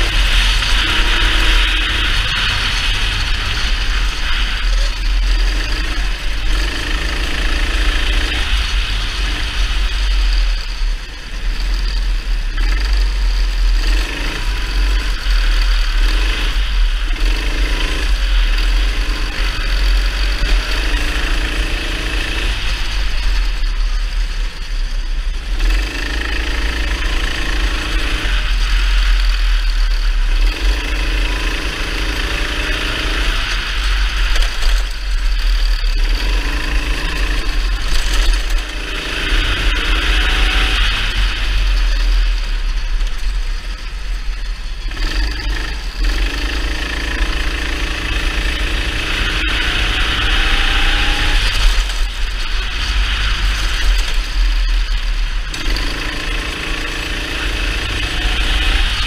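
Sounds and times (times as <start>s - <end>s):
racing kart engine: 0.0s - 59.0s.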